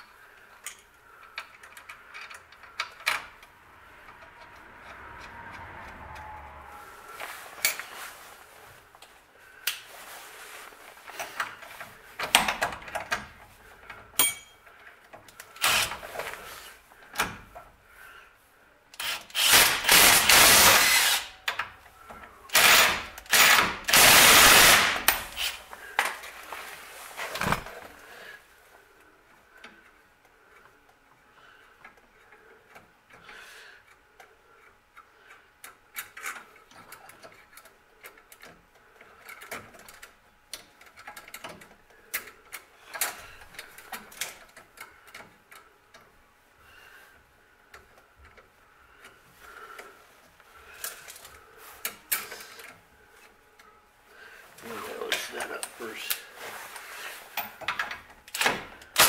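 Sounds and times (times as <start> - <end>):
cordless power driver running: 15.6 - 15.9, 19.0 - 21.3, 22.5 - 25.6.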